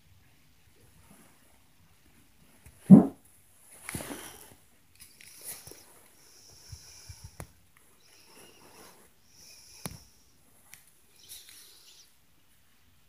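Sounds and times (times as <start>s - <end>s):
footfall thumps through ceiling: 2.8s - 3.2s
sharp knock: 2.9s - 3.2s
soft breathy hissing: 4.0s - 12.4s.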